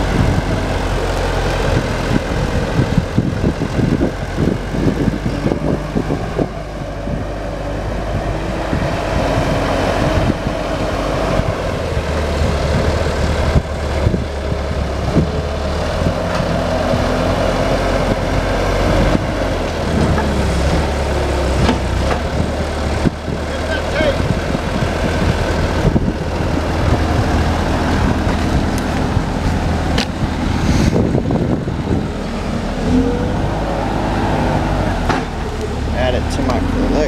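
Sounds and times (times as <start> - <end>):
diesel engine running: 0.0 - 37.0
knocks and clatter: 21.6 - 22.5.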